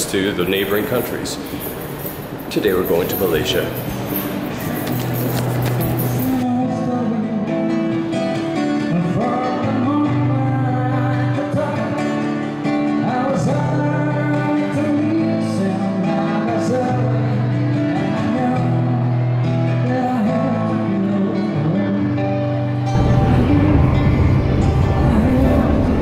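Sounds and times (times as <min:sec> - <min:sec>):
acoustic guitar: 0:00.0 - 0:26.0
person singing: 0:06.2 - 0:08.1, 0:08.7 - 0:26.0.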